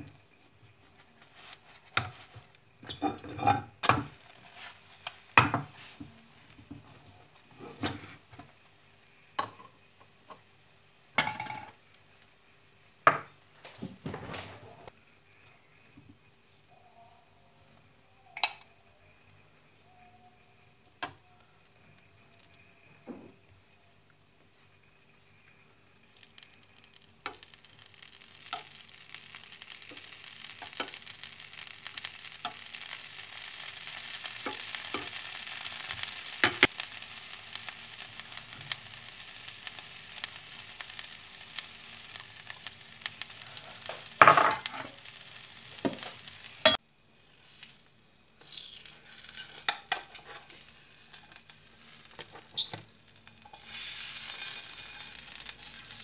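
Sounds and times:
food sizzling in frying pan: 0.9s - 13.4s, 24.8s - 56.0s.

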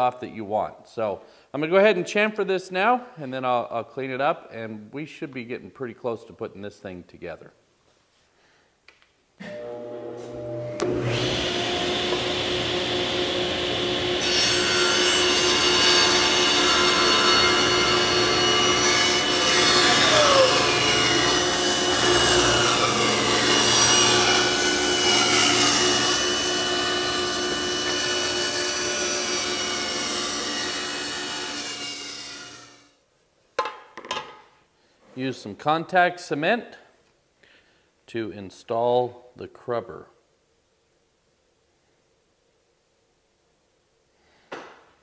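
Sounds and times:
table saw cutting wood: 9.5s - 32.9s.

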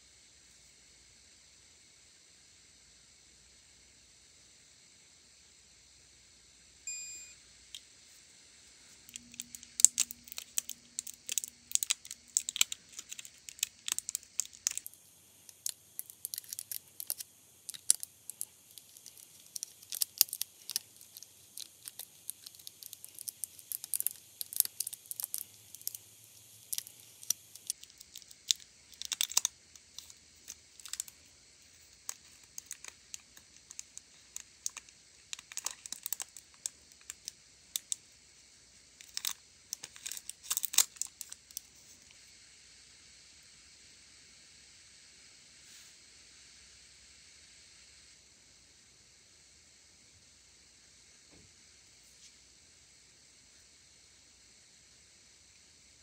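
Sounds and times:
plastic film crackling: 9.1s - 31.2s, 31.8s - 38.0s, 39.0s - 41.6s.

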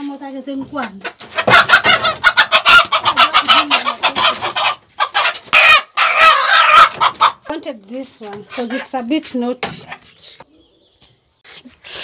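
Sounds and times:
chickens squawking and clucking: 0.6s - 7.6s, 8.2s - 9.1s, 9.7s - 11.4s.

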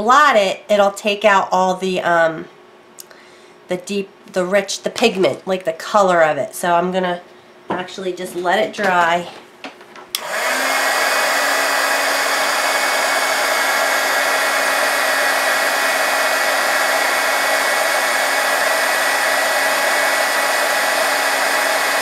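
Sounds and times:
hair dryer blowing air: 10.2s - 22.0s.

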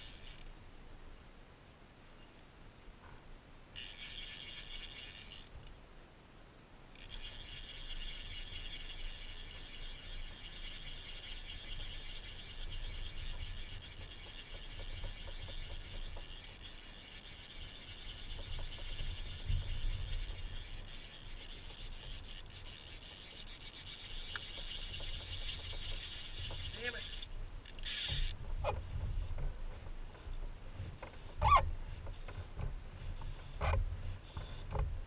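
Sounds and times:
fly reel drag buzzing: 0.0s - 0.5s, 3.8s - 5.7s, 6.9s - 28.4s.

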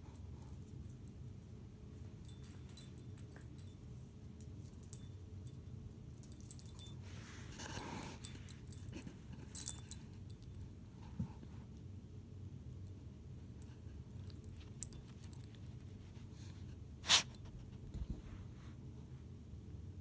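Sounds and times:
dog collar tags jingling: 1.9s - 10.7s, 14.2s - 15.9s.

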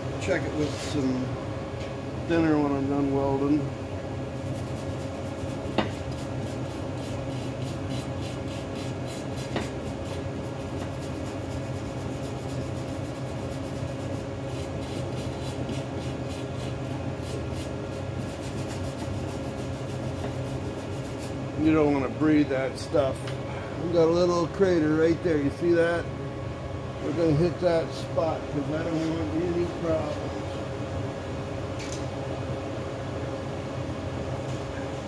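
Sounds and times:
shop hum: 0.0s - 35.0s
brush scrubbing metal: 4.4s - 21.4s.

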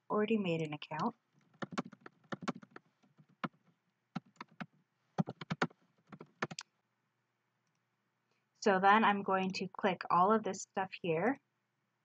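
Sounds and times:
computer keyboard typing: 0.6s - 3.6s, 4.2s - 6.6s.

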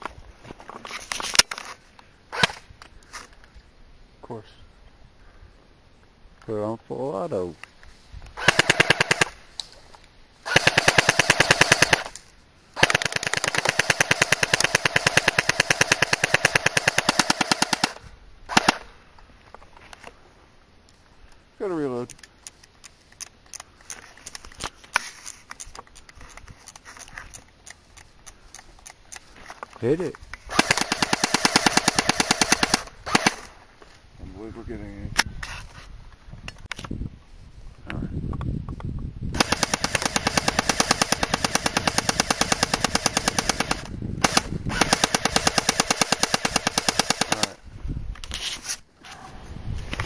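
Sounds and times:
airsoft gun firing bursts: 8.4s - 9.4s, 10.5s - 12.1s, 12.8s - 18.9s, 30.5s - 33.5s, 39.4s - 47.6s
magazine clicks and rattles: 22.0s - 33.3s.

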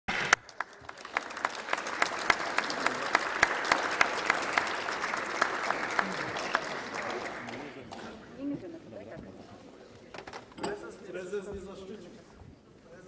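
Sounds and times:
loud rhythmic claps: 0.1s - 8.0s
crowd applauding: 0.1s - 8.1s.

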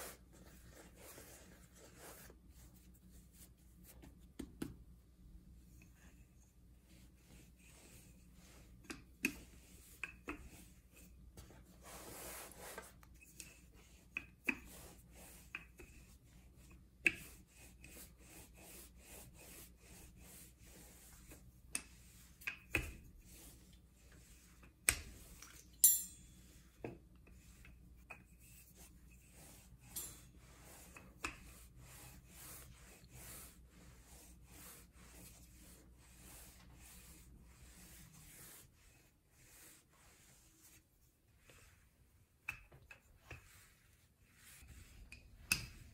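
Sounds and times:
rolling pin rubbing on dough: 0.0s - 4.8s, 5.7s - 25.4s, 26.4s - 45.9s.

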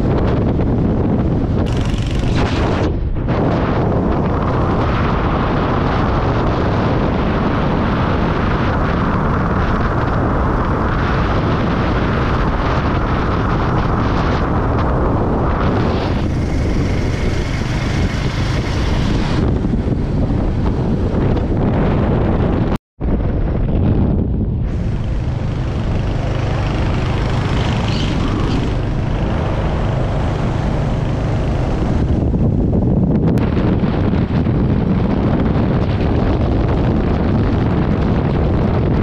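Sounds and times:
road noise: 0.0s - 39.0s
wind buffeting the microphone: 0.0s - 39.0s
motorcycle engine: 0.1s - 22.7s, 24.5s - 35.2s.

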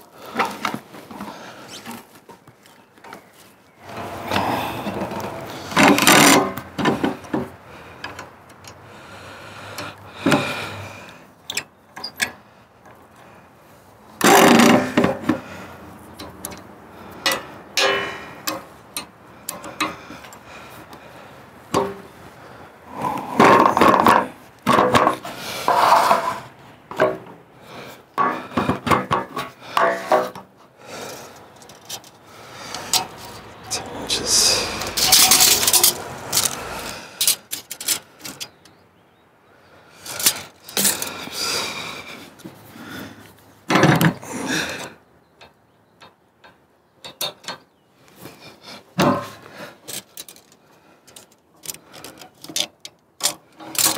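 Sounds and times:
metal rail knocking and scraping on wood: 3.8s - 8.3s, 14.2s - 15.5s, 16.2s - 20.3s, 21.7s - 22.1s, 23.0s - 27.4s, 28.2s - 30.5s, 31.7s - 38.5s, 43.7s - 44.2s, 49.0s - 50.5s.

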